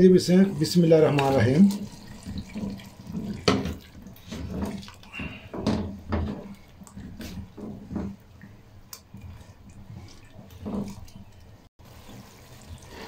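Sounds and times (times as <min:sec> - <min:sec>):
spatula scraping a pot: 0:00.3 - 0:08.2.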